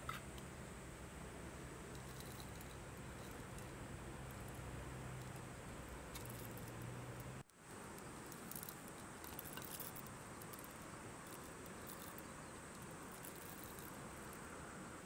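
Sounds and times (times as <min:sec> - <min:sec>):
faint outdoor hiss: 0:00.0 - 0:15.0
coffee beans rattling: 0:01.8 - 0:06.9, 0:07.8 - 0:14.4.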